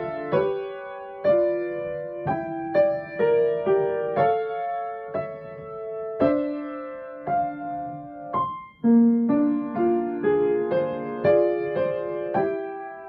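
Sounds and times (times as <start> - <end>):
slow gentle piano piece: 0.0 - 13.0.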